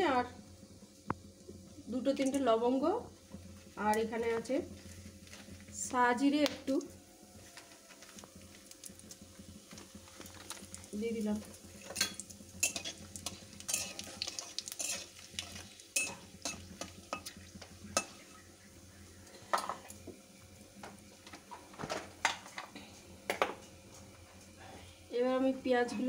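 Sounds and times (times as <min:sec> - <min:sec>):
spices sizzling in oil: 0:00.0 - 0:26.0
spatula scraping and clinking pan: 0:11.8 - 0:18.3.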